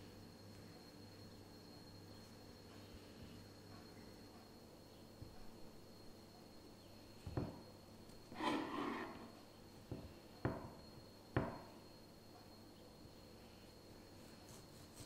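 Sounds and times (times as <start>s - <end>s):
soft rubbing of dough: 8.1s - 10.4s, 12.9s - 15.0s.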